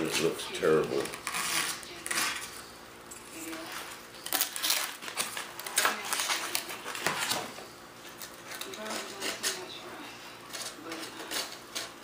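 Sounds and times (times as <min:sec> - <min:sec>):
razor blade scraping fiberglass: 0:01.2 - 0:02.4.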